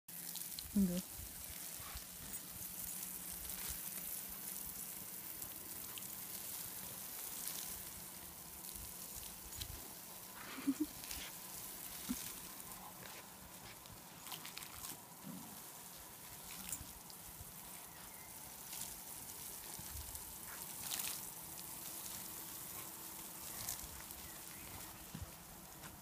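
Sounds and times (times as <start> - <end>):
garden hose spraying water: 0.1 - 26.0.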